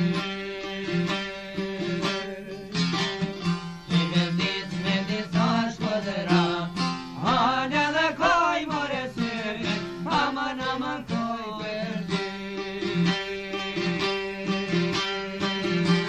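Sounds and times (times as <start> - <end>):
plucked lutes: 0.0 - 16.0.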